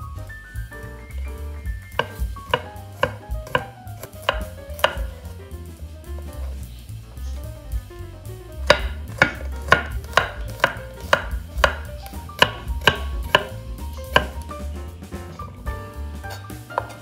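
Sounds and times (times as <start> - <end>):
quiet background music: 0.0 - 17.0
knife chopping on wooden board: 2.0 - 5.3, 8.6 - 14.4.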